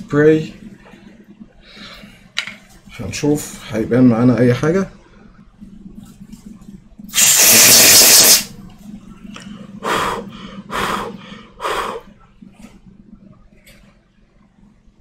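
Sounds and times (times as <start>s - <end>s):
aerosol spray hissing: 7.1s - 8.5s.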